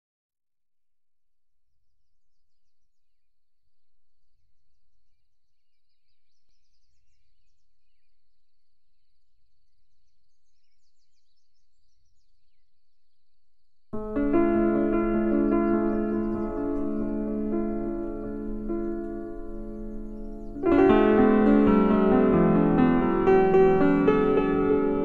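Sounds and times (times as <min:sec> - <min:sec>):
birds chirping: 0:09.0 - 0:25.0
low rumble: 0:14.0 - 0:25.0.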